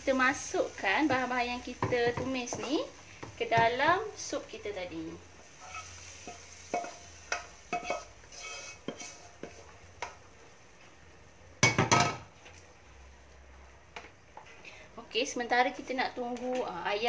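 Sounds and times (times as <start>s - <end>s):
wooden spatula scraping and knocking wok: 0.1s - 4.5s, 5.4s - 10.4s.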